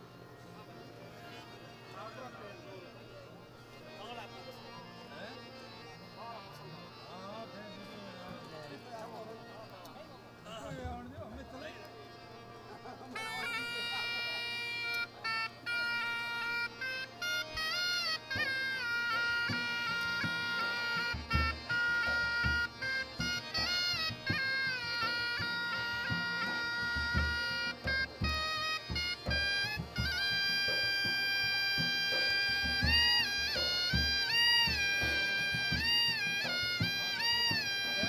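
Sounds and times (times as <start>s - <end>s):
harmonium: 0.0s - 38.0s
shehnai melody: 0.0s - 38.0s
hand drum beats: 23.2s - 38.0s.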